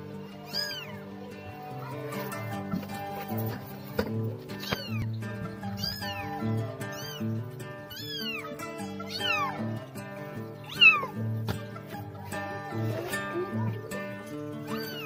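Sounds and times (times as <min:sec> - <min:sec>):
kitten meowing: 0:00.4 - 0:01.0, 0:04.6 - 0:09.8, 0:10.6 - 0:11.1, 0:14.6 - 0:15.0.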